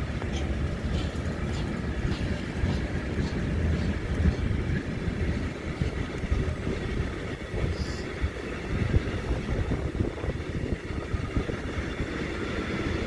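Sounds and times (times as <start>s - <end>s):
freight train wheels rumbling: 0.0s - 13.0s.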